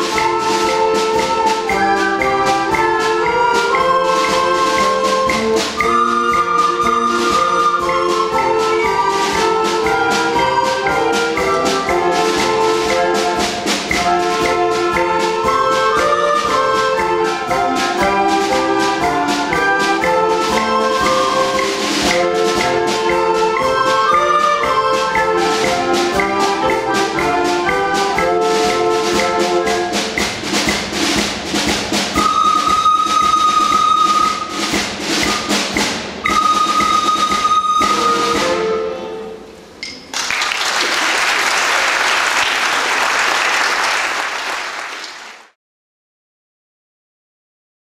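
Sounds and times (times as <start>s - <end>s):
percussion ticks: 0.0s - 38.2s
recorder ensemble playing: 0.0s - 40.1s
audience applause: 40.1s - 45.5s.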